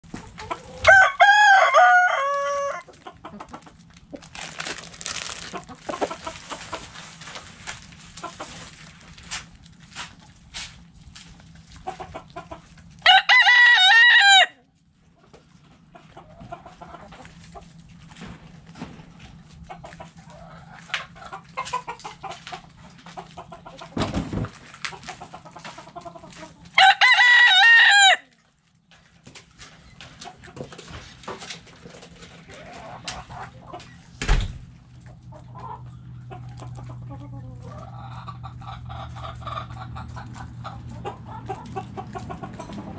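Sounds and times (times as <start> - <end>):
hens clucking softly: 0.1 - 0.9, 2.2 - 9.1, 11.2 - 13.0, 15.0 - 26.8, 29.3 - 34.2, 34.9 - 42.9
rooster crowing: 0.7 - 2.9, 13.0 - 14.6, 26.8 - 28.3.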